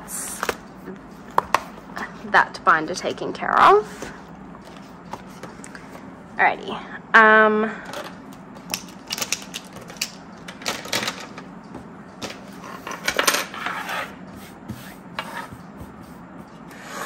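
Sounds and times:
plastic pens clicking on desk: 8.7s - 11.2s.

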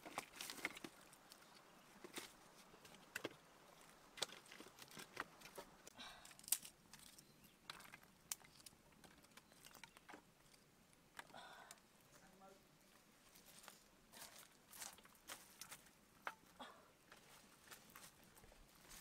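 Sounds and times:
dry sticks clicking on stones: 4.1s - 11.8s.

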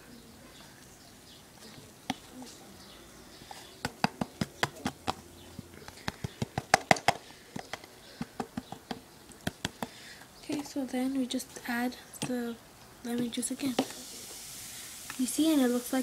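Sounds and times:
sharp clicks and taps: 3.8s - 10.8s.

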